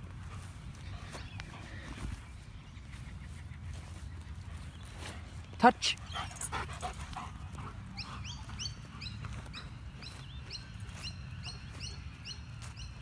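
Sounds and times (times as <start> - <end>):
bird chirping: 7.5 - 13.0.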